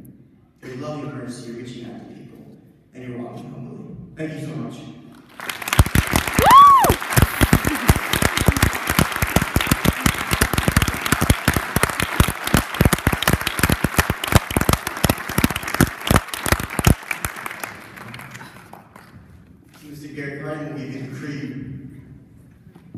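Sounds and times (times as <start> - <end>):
audience applauding: 5.2 - 19.2
hands clapping loudly close by: 5.2 - 19.2.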